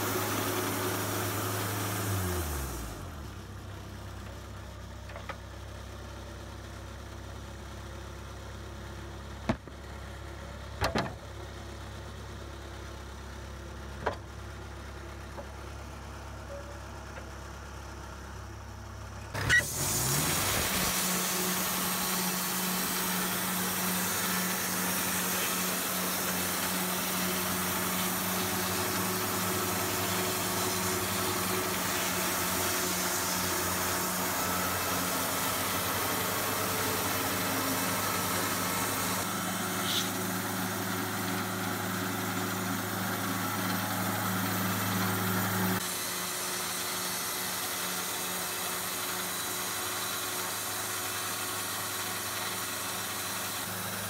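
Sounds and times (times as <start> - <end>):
low engine hum: 0.0 - 45.9
band saw blade hissing: 19.4 - 40.4.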